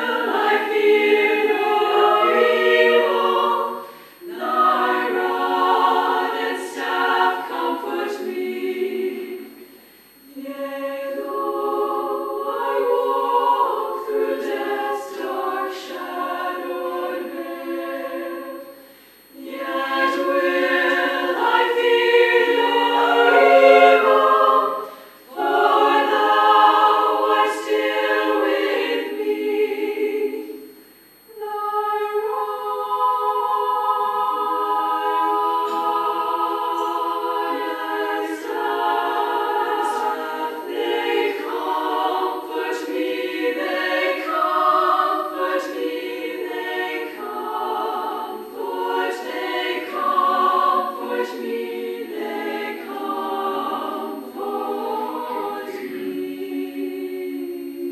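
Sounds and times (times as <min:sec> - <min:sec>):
women's choir singing a cappella: 0:00.0 - 0:57.9.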